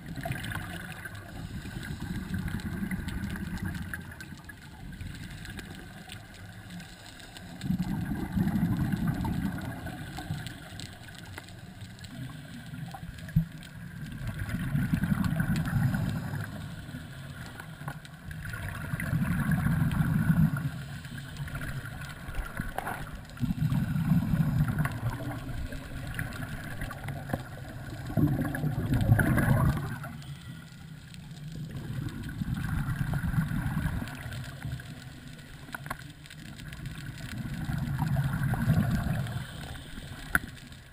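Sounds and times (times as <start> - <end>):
quiet hiss: 0.0 - 40.9
underwater exhaust bubbles: 0.0 - 40.9.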